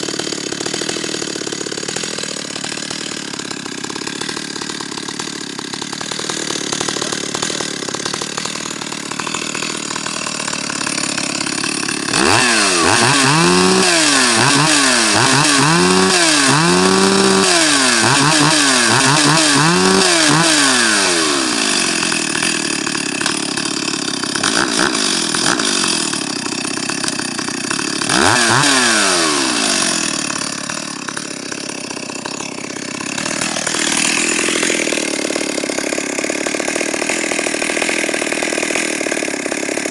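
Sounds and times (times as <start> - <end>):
chainsaw idling and revving: 0.0 - 39.9.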